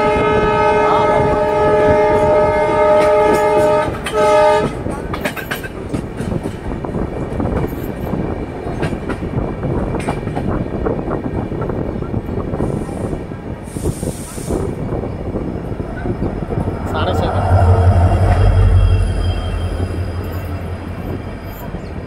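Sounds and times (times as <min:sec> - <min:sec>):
train horn blasts: 0:00.0 - 0:04.9, 0:16.7 - 0:21.6
train coaches rumbling on track: 0:00.0 - 0:22.0
wheels clicking over rail joints: 0:03.3 - 0:06.7.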